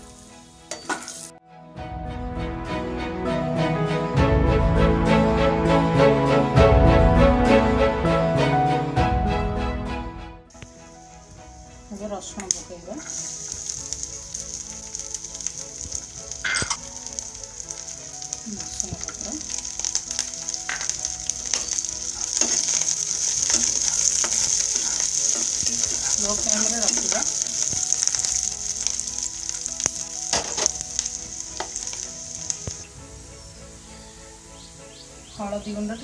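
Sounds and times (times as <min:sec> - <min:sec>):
food sizzling in oil in a pan: 0:00.0 - 0:01.4, 0:10.5 - 0:35.8
spatula scraping and tapping pan: 0:16.4 - 0:16.8, 0:20.7 - 0:25.9.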